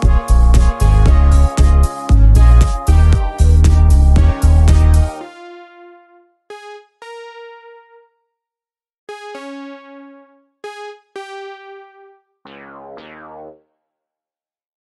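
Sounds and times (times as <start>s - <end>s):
sparse synthesizer keyboard notes: 0.0s - 8.1s, 9.1s - 13.6s
low synth chord sweeping downward: 9.1s - 13.6s.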